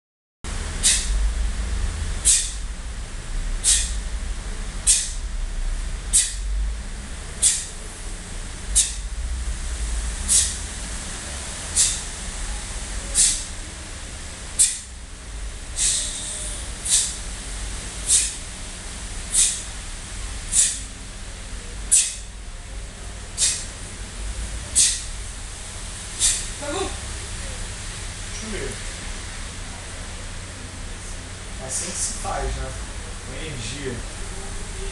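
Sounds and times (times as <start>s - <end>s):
low room hum: 0.5s - 34.9s
sharp breath hiss: 0.7s - 1.2s, 2.2s - 2.7s, 3.6s - 4.1s, 4.8s - 5.3s, 6.1s - 6.5s, 7.4s - 7.8s, 8.7s - 9.1s, 9.9s - 10.7s, 11.6s - 12.2s, 13.0s - 13.6s, 14.5s - 15.0s, 15.7s - 17.3s, 17.9s - 18.6s, 19.2s - 19.8s, 20.4s - 21.0s, 21.8s - 22.4s, 23.3s - 24.0s, 24.6s - 25.3s, 26.1s - 26.6s
sharp exhalations through teeth: 0.8s - 1.2s, 2.2s - 2.6s, 3.6s - 4.1s, 4.8s - 5.2s, 6.1s - 6.5s, 7.4s - 7.8s, 8.7s - 9.1s, 10.3s - 10.7s, 11.7s - 12.2s, 13.0s - 13.6s, 14.6s - 14.9s, 15.8s - 17.2s, 18.0s - 18.5s, 19.3s - 19.7s, 20.5s - 20.9s, 21.8s - 22.4s, 23.4s - 23.8s, 24.7s - 25.2s, 26.2s - 27.1s.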